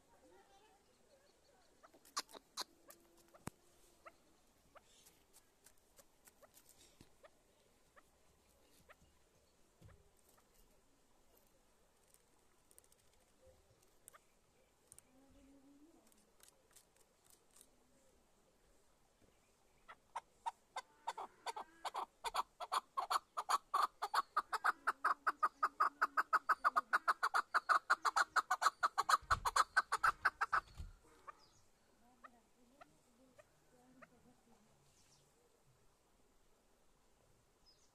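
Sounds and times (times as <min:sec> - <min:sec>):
partridge rapid chuck calls: 0:01.8 - 0:03.4, 0:21.9 - 0:30.8.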